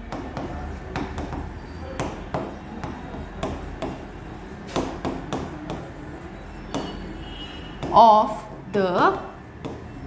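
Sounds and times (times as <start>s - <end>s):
stylus tapping on screen: 0.0s - 4.1s.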